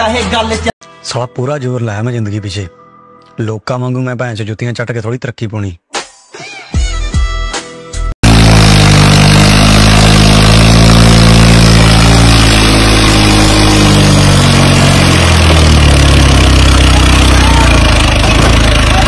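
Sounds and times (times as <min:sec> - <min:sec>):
tractor diesel engine straining: 0:08.2 - 0:19.0.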